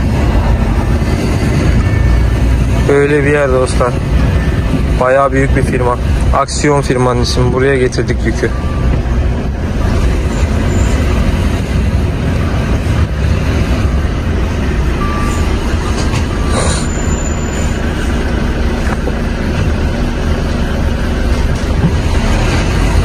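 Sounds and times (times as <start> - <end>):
truck diesel engine drone: 0.0 - 23.0.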